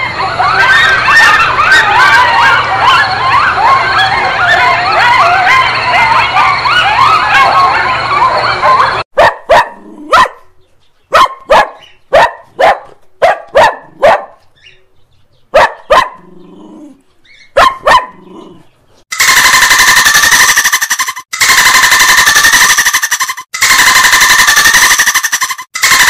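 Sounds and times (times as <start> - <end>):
loud rapid rattling buzz: 19.1 - 26.0.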